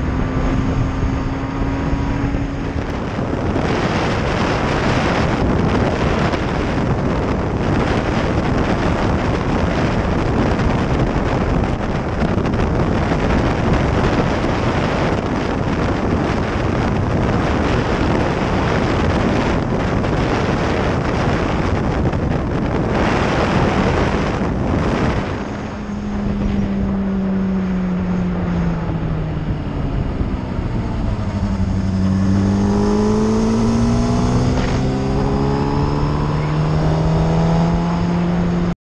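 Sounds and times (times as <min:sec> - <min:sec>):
motorcycle engine: 0:00.0 - 0:38.8
wind rush on microphone: 0:00.0 - 0:38.8.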